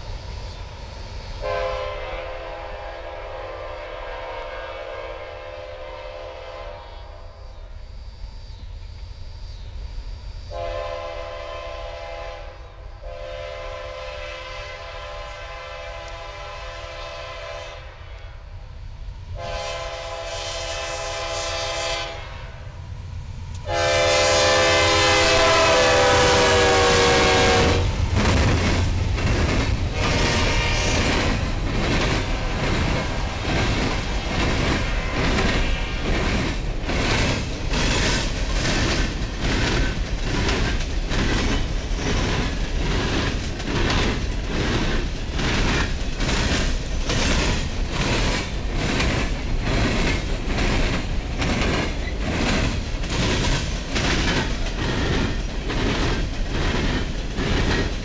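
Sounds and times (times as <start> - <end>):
locomotive air horn blasts: 1.4 - 7.2, 10.5 - 18.4, 19.4 - 22.7, 23.6 - 28.0, 29.9 - 31.3, 34.8 - 36.2
locomotive engine rumble: 22.2 - 58.0
train wheels clattering on rails: 23.5 - 58.0.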